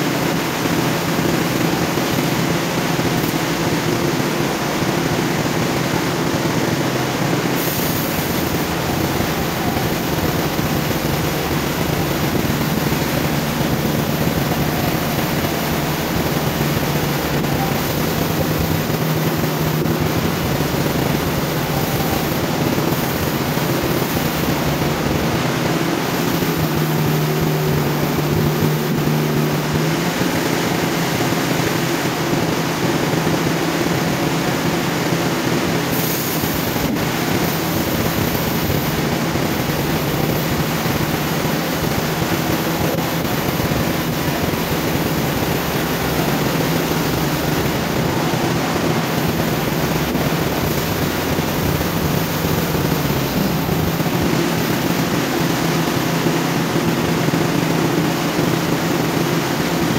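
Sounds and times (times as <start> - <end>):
band sawmill running: 0.0 - 59.9.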